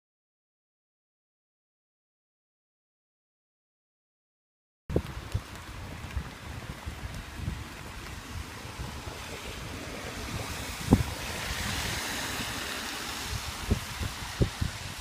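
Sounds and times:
wind buffeting microphone: 0:04.9 - 0:15.0
wind hissing through leaves: 0:04.9 - 0:15.0.

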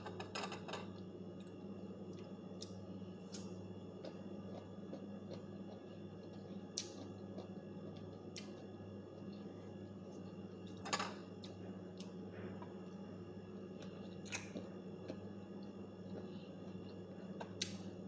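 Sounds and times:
steady low hum: 0:00.0 - 0:18.0
chewing crunches: 0:02.1 - 0:09.5.

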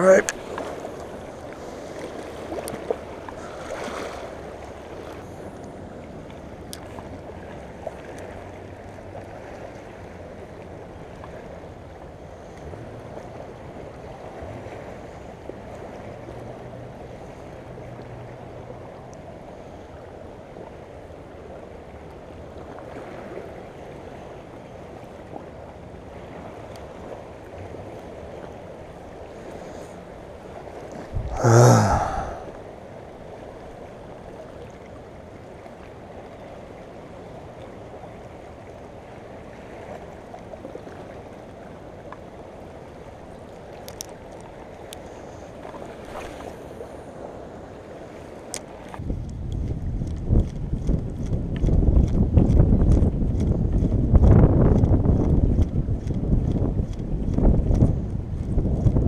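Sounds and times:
rushing floodwater: 0:00.0 - 0:49.1
wind hitting microphone: 0:31.1 - 0:32.1, 0:49.0 - 0:59.0.

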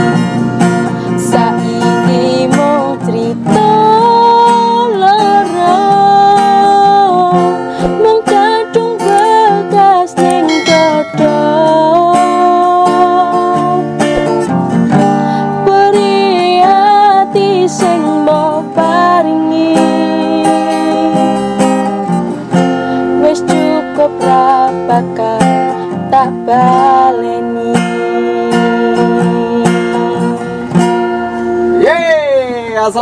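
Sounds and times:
strummed acoustic guitar: 0:00.0 - 0:33.0
woman singing: 0:01.1 - 0:22.1, 0:22.8 - 0:30.7.

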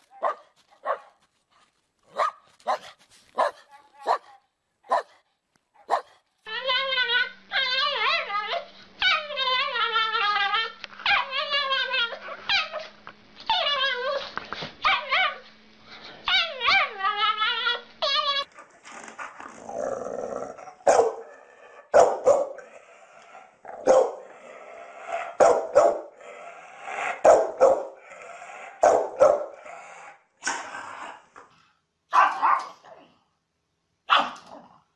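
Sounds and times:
large dog barking: 0:00.2 - 0:01.1, 0:02.1 - 0:04.3, 0:04.9 - 0:05.2, 0:05.8 - 0:06.1, 0:20.8 - 0:22.7, 0:23.7 - 0:24.4, 0:25.3 - 0:26.2, 0:27.0 - 0:28.0, 0:28.8 - 0:29.6, 0:32.1 - 0:32.8.

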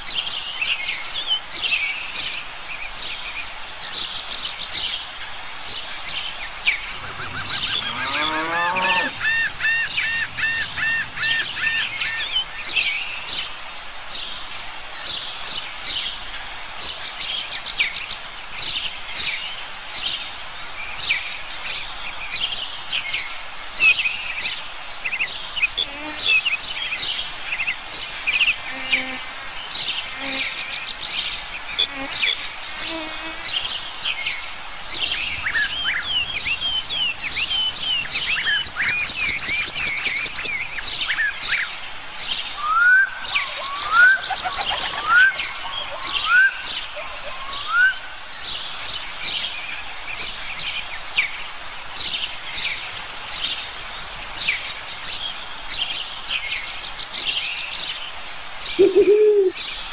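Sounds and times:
low animal call: 0:06.9 - 0:09.5, 0:58.8 - 0:59.6
small birds chirping: 0:28.0 - 0:42.5.

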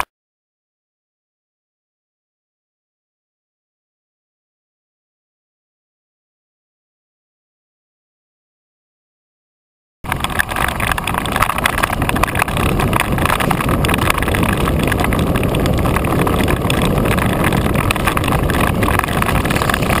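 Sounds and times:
bike tyres rumbling over dirt: 0:10.0 - 0:20.0
bike rattling with small clicks: 0:10.1 - 0:20.0
wind on microphone: 0:10.1 - 0:20.0.

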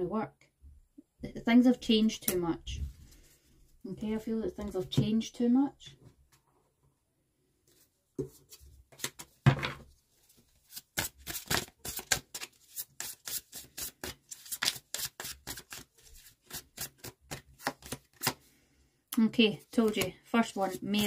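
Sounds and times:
cards being shuffled: 0:08.5 - 0:09.4, 0:10.6 - 0:18.5.

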